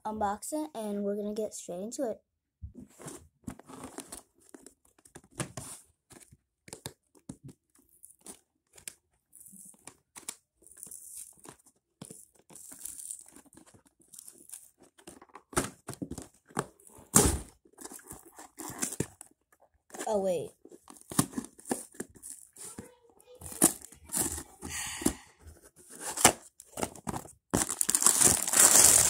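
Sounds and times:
handling rustles: 7.8s - 29.0s
cardboard tearing: 9.4s - 25.1s, 25.8s - 29.0s.

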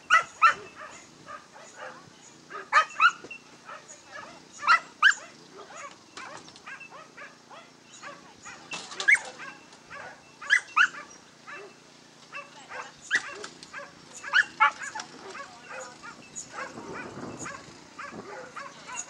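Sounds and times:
dogs yipping and barking: 0.0s - 19.0s.

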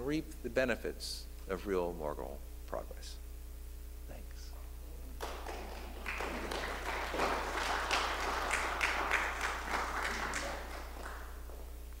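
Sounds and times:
audience applauding: 5.2s - 11.8s.

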